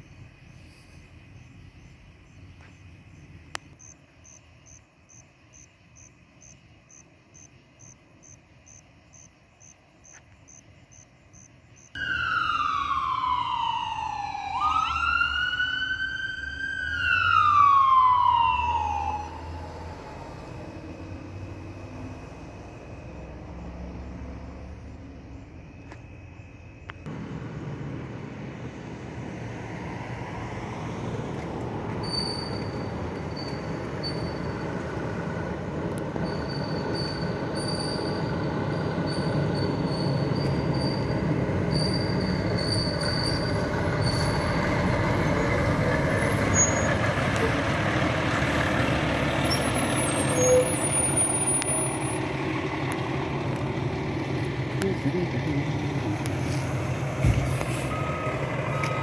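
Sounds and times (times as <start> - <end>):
fire engine driving past: 11.6 - 59.0
faint high squeal: 32.0 - 34.8, 36.2 - 47.6, 49.4 - 52.2, 57.7 - 59.0.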